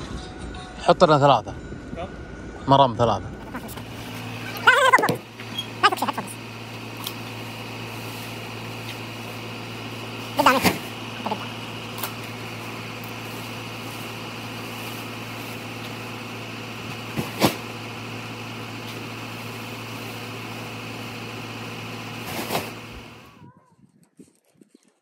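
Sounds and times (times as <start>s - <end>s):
pickup truck idling: 3.5s - 23.4s
sacks thudding onto truck bed: 17.1s - 17.7s, 22.2s - 22.8s.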